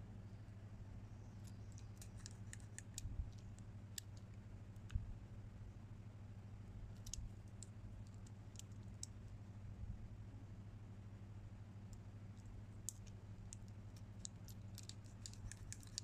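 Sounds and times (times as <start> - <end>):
low steady hum: 0.0 - 16.0
lock wheels clicking: 1.5 - 3.0, 12.9 - 16.0.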